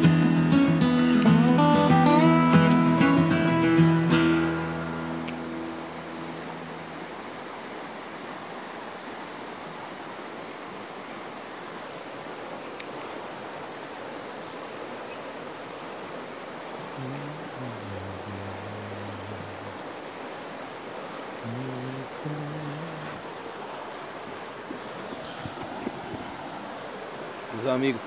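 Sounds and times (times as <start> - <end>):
acoustic guitar music: 0.0 - 7.2
river water rushing: 0.0 - 28.0.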